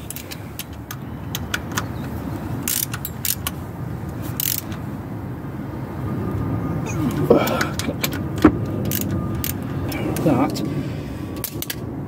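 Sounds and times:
sharp metallic ticks: 0:00.0 - 0:03.6, 0:04.4 - 0:04.8
socket ratchet clicking: 0:00.0 - 0:03.6, 0:04.4 - 0:04.8, 0:07.7 - 0:09.6.

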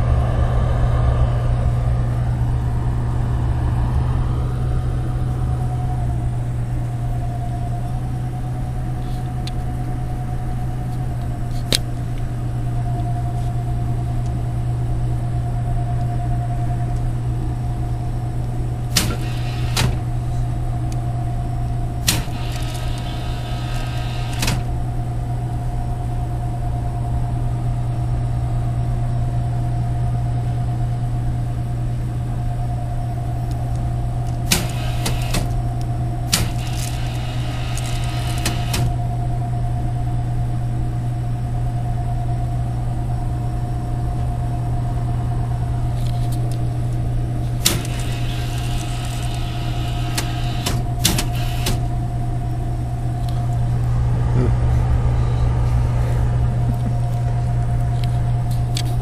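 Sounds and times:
thin steady whine: 0:00.0 - 0:59.0
vending machine cooling hum: 0:00.0 - 0:59.0
sharp clicks: 0:18.9 - 0:20.0, 0:34.3 - 0:35.6, 0:36.3 - 0:38.9, 0:47.6 - 0:51.9.

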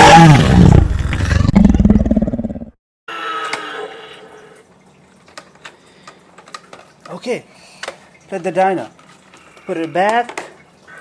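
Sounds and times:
dinosaur roar and growl: 0:00.0 - 0:04.3.

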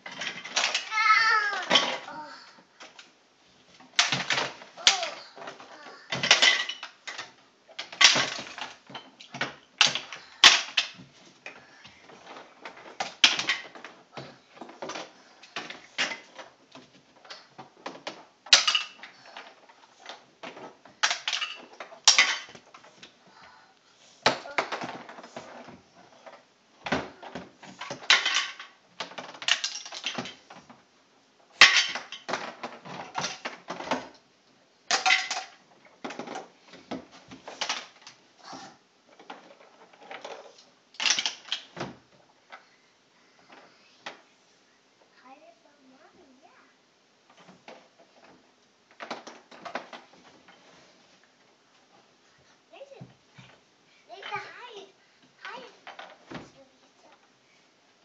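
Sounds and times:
toys clattering in plastic chest: 0:00.0 - 0:03.1, 0:03.8 - 0:23.2, 0:24.2 - 0:30.8, 0:31.5 - 0:34.2, 0:34.9 - 0:38.2, 0:39.1 - 0:42.1, 0:47.3 - 0:50.7, 0:55.4 - 0:57.3.

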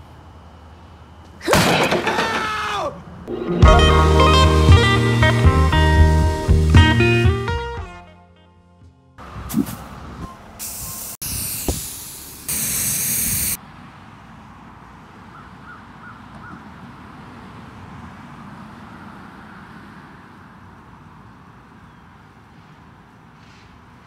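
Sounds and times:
spray paint can hissing: 0:10.6 - 0:13.6.

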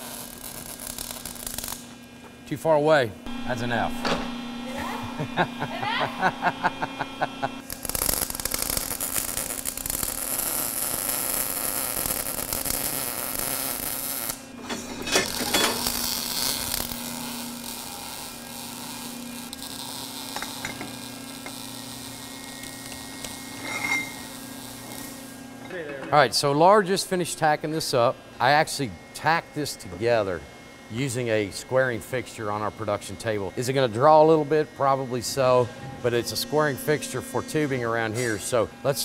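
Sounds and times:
welding arc crackling: 0:00.0 - 0:02.1, 0:03.3 - 0:14.6, 0:15.2 - 0:25.4.

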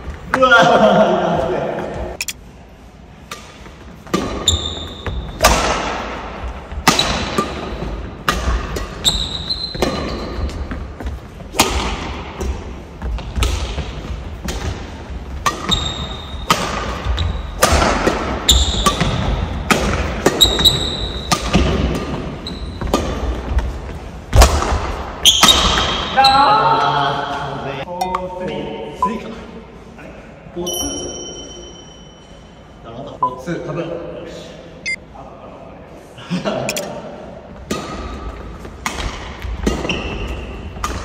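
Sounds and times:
shoes squeaking on court floor: 0:03.5 - 0:05.4, 0:08.7 - 0:11.5, 0:13.0 - 0:17.6, 0:20.4 - 0:24.0, 0:39.4 - 0:41.0
rackets striking shuttlecock: 0:14.4 - 0:22.2.

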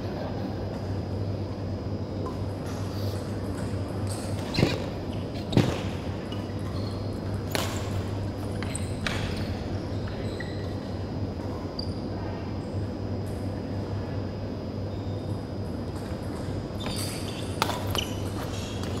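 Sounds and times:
steady low hum: 0:00.0 - 0:19.0
rackets striking shuttlecock: 0:05.5 - 0:09.5.

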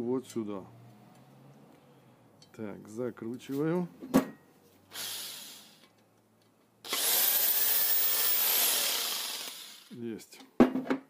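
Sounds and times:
drill-driver motor whine: 0:04.9 - 0:05.8, 0:06.9 - 0:09.9.

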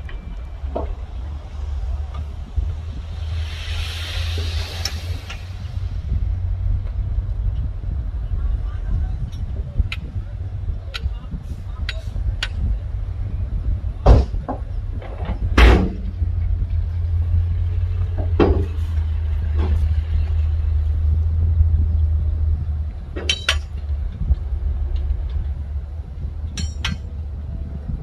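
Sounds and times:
diesel machinery rumbling: 0:00.0 - 0:28.0.

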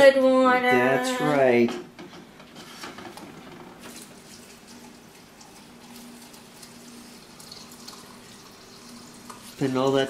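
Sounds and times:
water running into a cup: 0:03.8 - 0:10.0.

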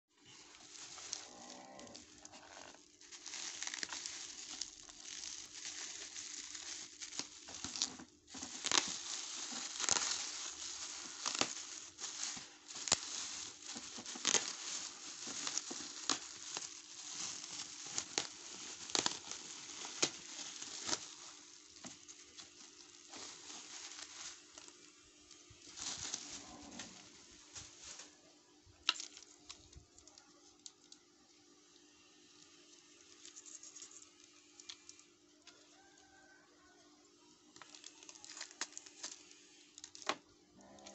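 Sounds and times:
bubble wrap crinkling: 0:00.2 - 0:36.8, 0:37.5 - 0:40.9.

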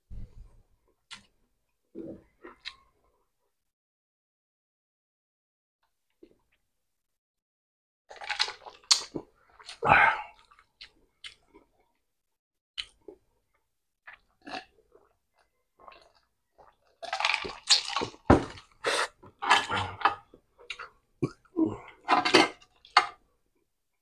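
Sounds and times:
gulping and chewing: 0:12.8 - 0:23.2.

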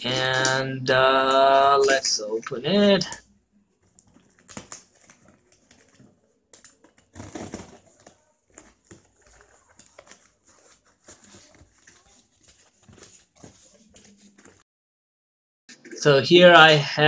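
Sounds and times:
foam packing rustling: 0:06.8 - 0:14.6.

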